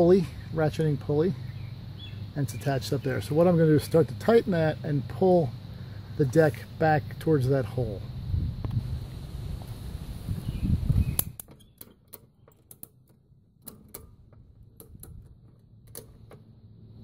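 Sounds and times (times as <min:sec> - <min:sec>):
ratchet strap pawl clicking: 0:11.0 - 0:16.4.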